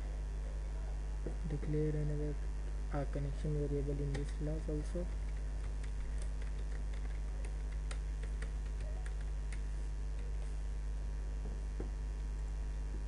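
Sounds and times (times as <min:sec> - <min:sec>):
steady low hum: 0:00.0 - 0:13.0
keyboard keys clicking: 0:05.2 - 0:09.6.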